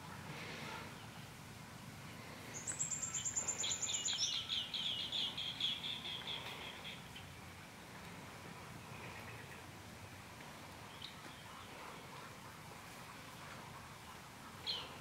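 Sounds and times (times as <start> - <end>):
songbird trilling: 2.5 - 7.0.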